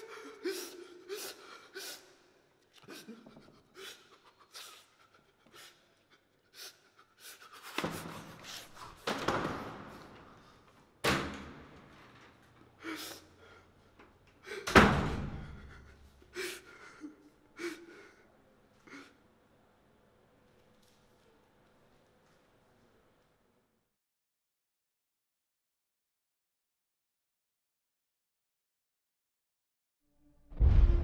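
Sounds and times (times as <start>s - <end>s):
man breathing heavily: 0.0s - 9.1s, 12.8s - 19.2s
heavy door slams: 9.0s - 10.0s, 11.0s - 11.8s, 14.6s - 15.6s.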